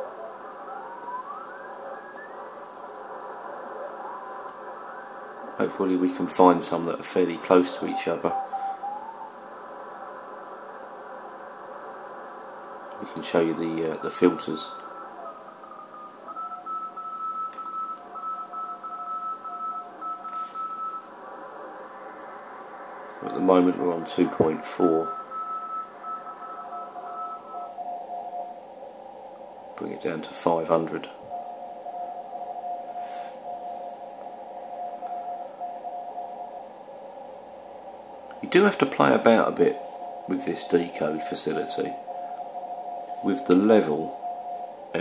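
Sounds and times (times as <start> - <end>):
higher pitched morse code: 0.0 - 6.4, 7.2 - 9.4, 13.0 - 21.1, 23.2 - 28.6
lower pitched morse code: 0.0 - 9.7, 13.0 - 21.3, 23.1 - 28.8, 30.4 - 45.0
radio band hiss: 0.0 - 45.0.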